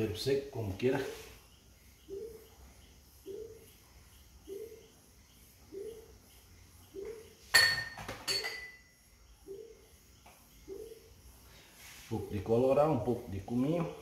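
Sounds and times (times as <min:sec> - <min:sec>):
glass containers clinking: 0:07.5 - 0:08.9.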